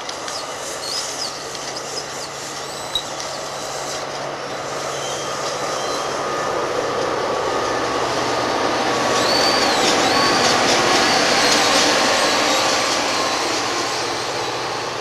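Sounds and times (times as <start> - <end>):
train wheel-on-rail rumble: 0.0 - 15.0
wheel squeals: 0.2 - 6.2, 8.9 - 14.5.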